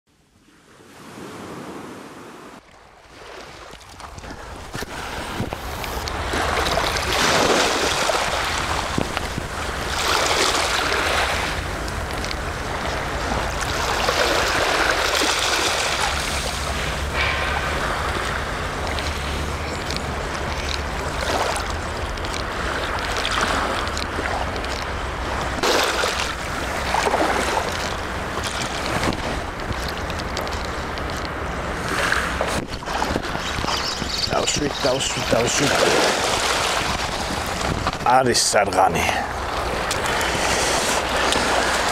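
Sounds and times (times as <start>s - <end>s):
wind rumbling on microphone: 0.3s - 41.9s
sea waves washing onto shore: 0.4s - 41.9s.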